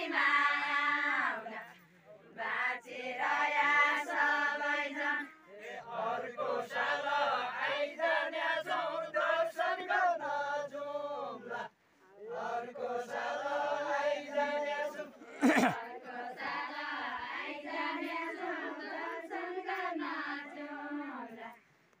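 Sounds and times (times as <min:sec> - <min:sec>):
women singing in unison: 0:00.0 - 0:21.7
men singing low: 0:12.3 - 0:21.4.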